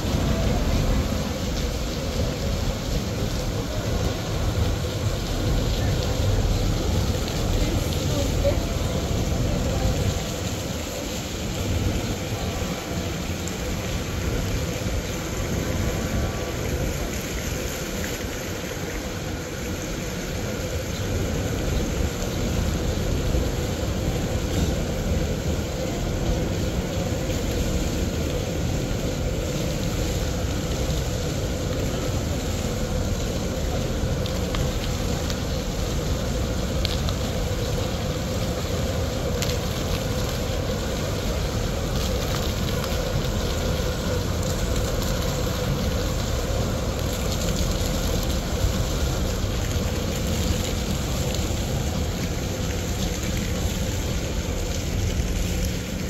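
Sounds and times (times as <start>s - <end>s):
low rumble: 0.0s - 18.4s
fountain jets splashing: 0.0s - 56.0s.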